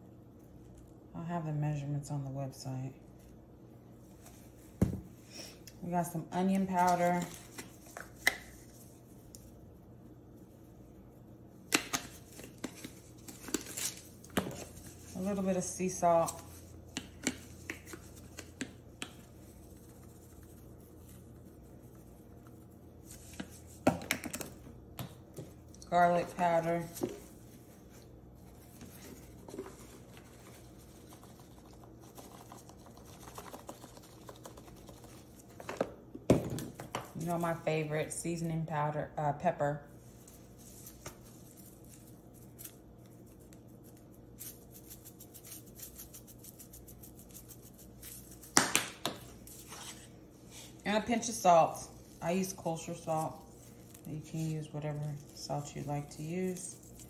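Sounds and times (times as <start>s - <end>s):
spice shakers clicking and tapping: 16.8s - 19.9s, 30.9s - 35.9s.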